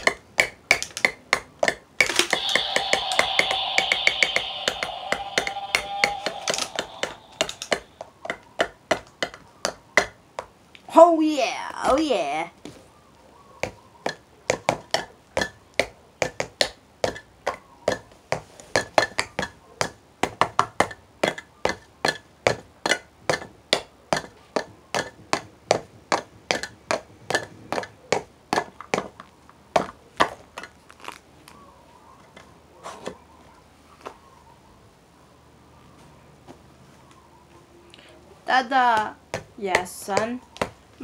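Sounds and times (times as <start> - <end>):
drum struck with sticks: 2.0 - 7.9.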